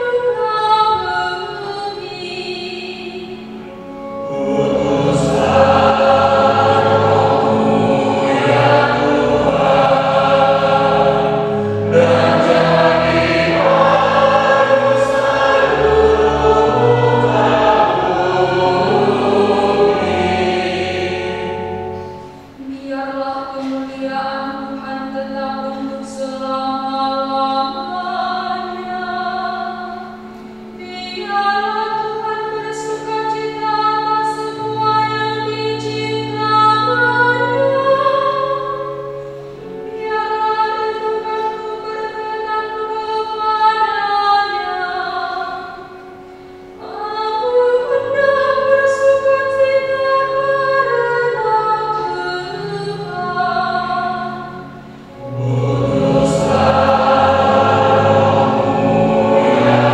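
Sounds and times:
woman singing into a microphone: 0.0 - 3.7, 22.6 - 30.2, 30.8 - 46.1, 46.8 - 54.7
held low accompanying notes: 2.8 - 59.9.

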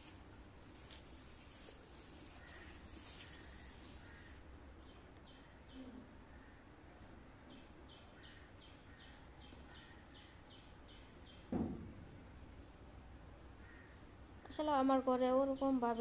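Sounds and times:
bird chirping: 2.3 - 6.5, 7.4 - 11.5
dull thump: 11.5 - 12.1.

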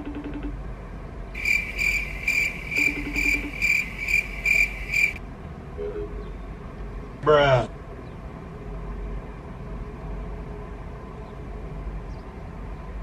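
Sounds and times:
cricket chirps: 1.4 - 5.2.

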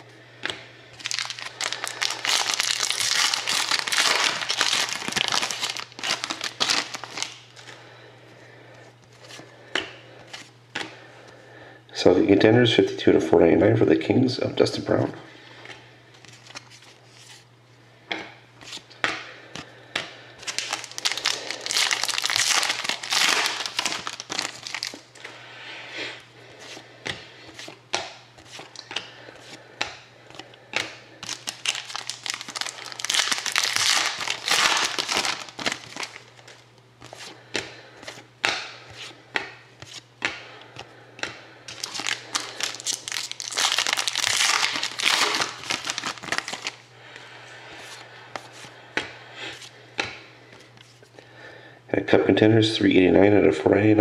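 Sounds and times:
foil wrappers crinkling and tearing: 1.0 - 7.7, 20.4 - 25.2, 31.2 - 37.4, 41.7 - 46.8.

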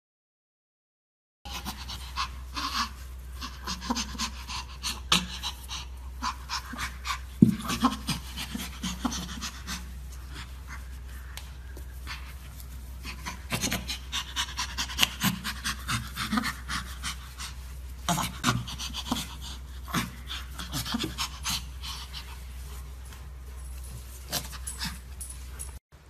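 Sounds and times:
chimpanzee play-panting laughter: 1.5 - 10.4
steady low hum: 1.5 - 26.0.

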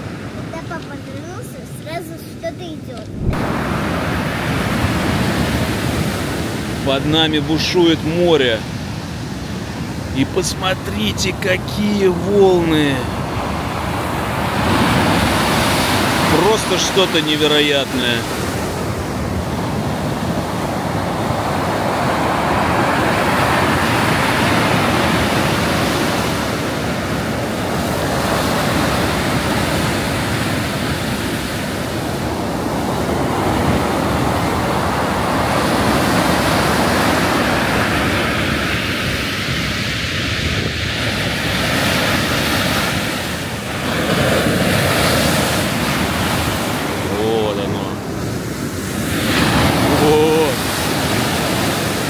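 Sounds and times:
waves breaking on shore: 0.0 - 52.0
wind gusts on microphone: 2.9 - 17.2, 17.9 - 52.0.

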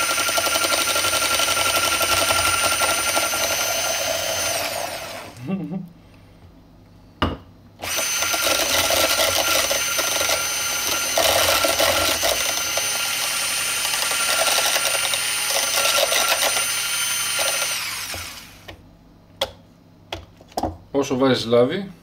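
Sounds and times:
electric hand mixer whining: 0.0 - 5.4, 7.8 - 18.7.

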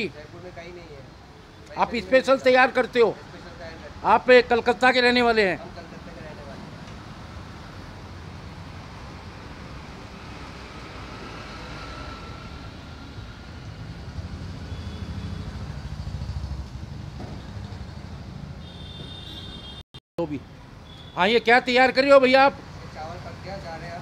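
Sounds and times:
road traffic rumble: 0.0 - 24.0
vehicle passing: 7.8 - 18.5.

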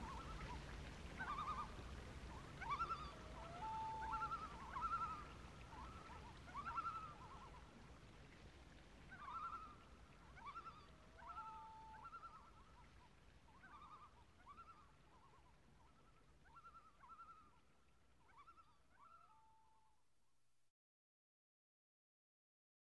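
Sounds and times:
loon calling: 1.2 - 7.6, 9.1 - 12.9.

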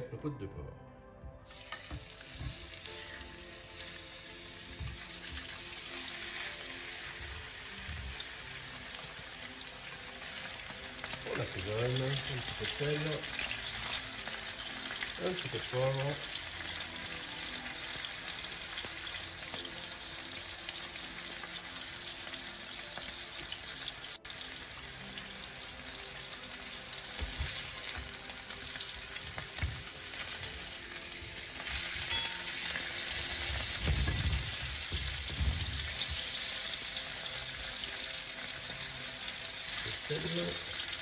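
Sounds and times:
meat sizzling in a frying pan: 1.4 - 41.0.

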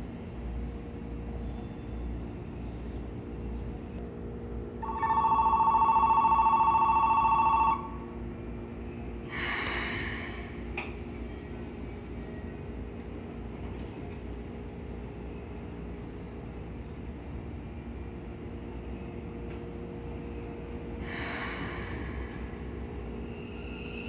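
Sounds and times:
train humming: 0.0 - 24.0
electronic departure bell ringing: 4.8 - 7.9.

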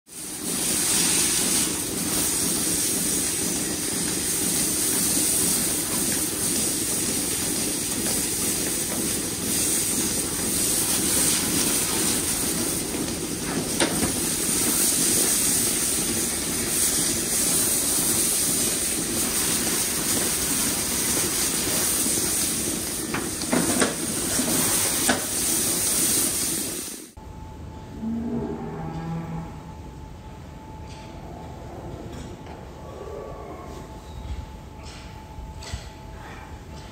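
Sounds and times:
hose water jet spraying steel: 0.1 - 27.2.

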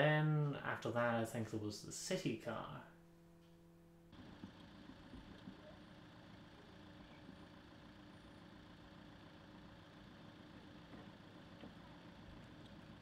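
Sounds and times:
small motor humming: 4.1 - 13.0.

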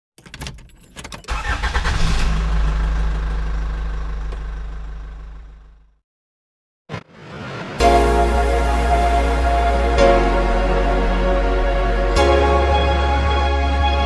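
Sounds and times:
deep mechanical rumble: 1.6 - 6.0.

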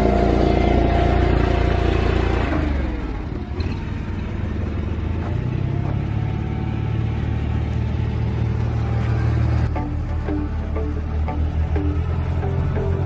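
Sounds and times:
bale wrapper engine running: 0.0 - 13.0.

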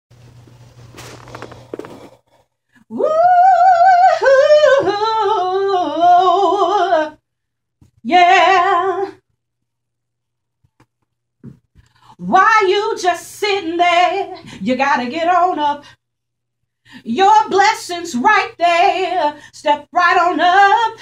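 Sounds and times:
woman singing gospel solo: 2.9 - 7.2, 8.0 - 9.2, 12.2 - 15.9, 17.0 - 21.0.

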